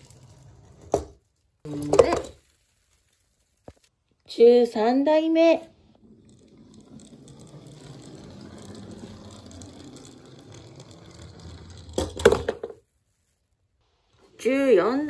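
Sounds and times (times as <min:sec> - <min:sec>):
toy car rolling on wooden ramp: 0:00.0 - 0:02.5, 0:05.1 - 0:12.9
toy car clacking: 0:05.7 - 0:12.8.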